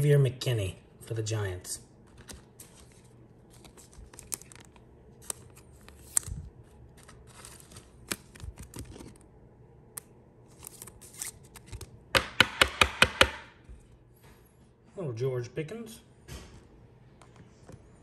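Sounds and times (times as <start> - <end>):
trading cards being flipped: 2.1 - 9.2, 9.9 - 12.0.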